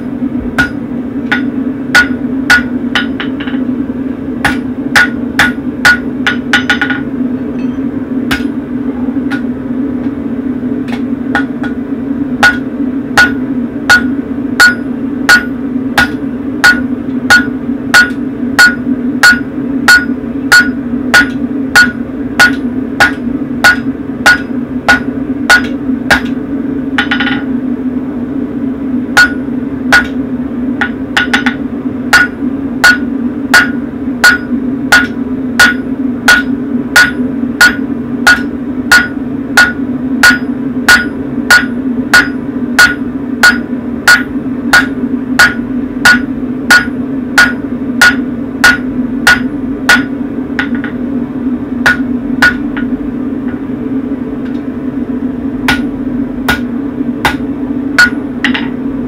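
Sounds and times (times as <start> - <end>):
steady hum: 0.0 - 59.0
hammer ringing on anvil: 0.6 - 3.6, 4.5 - 8.5, 12.4 - 26.4, 27.0 - 27.5, 29.2 - 30.2, 30.8 - 51.0, 51.9 - 52.9, 58.0 - 58.7.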